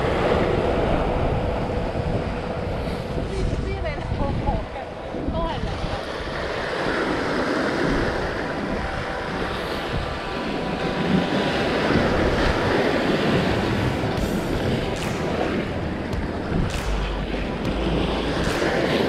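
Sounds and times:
wind buffeting microphone: 0.0s - 19.0s
waves washing over rocks: 5.0s - 19.0s.

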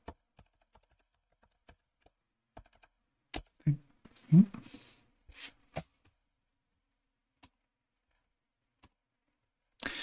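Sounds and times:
person inhaling or sighing: 9.8s - 10.0s.

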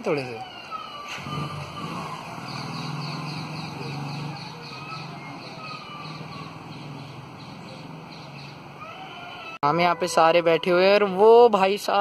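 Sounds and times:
motor vehicle engine hum: 1.1s - 8.9s.

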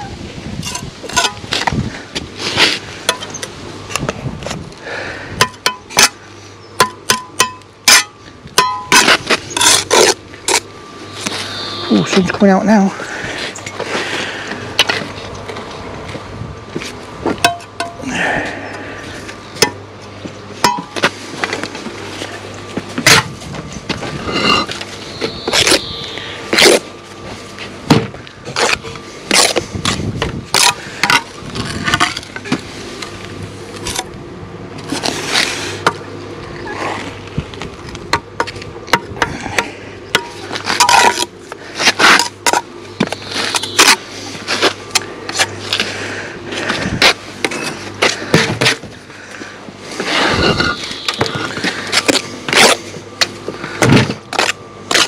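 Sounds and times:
trowel scraping mortar: 8.9s - 10.6s, 50.0s - 52.8s.

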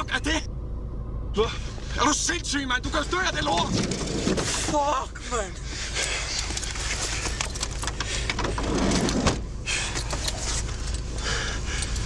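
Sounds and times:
steady low rumble: 0.0s - 12.0s
rustling clicks and knocks in car: 3.3s - 4.9s, 5.7s - 12.0s.

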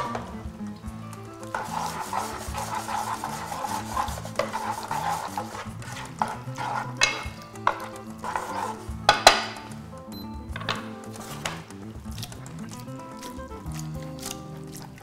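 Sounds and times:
pasta sizzling in a pan: 1.4s - 8.9s
tongs clinking against a pan: 6.1s - 9.8s.

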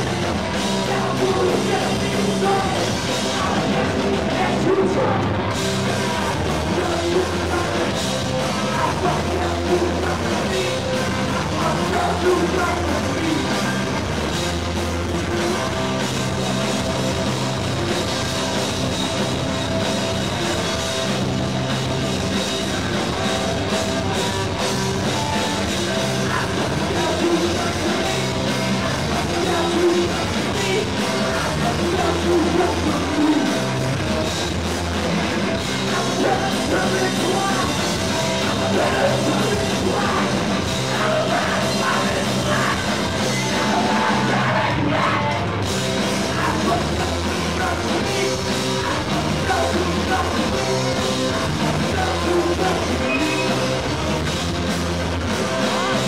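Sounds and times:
person singing: 0.0s - 13.9s, 25.0s - 33.7s, 35.6s - 53.8s
bass guitar: 0.0s - 56.0s
drum kit: 0.0s - 56.0s
electric guitars: 0.0s - 56.0s.

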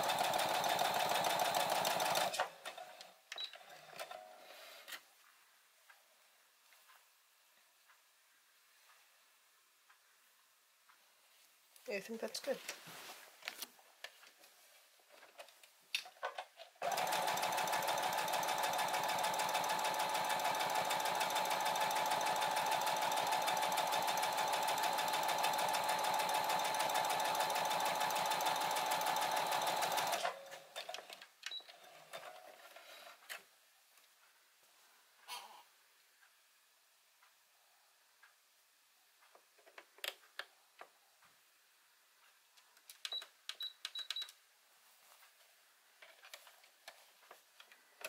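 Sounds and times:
sewing machine stitching: 0.0s - 2.9s, 16.8s - 31.0s.

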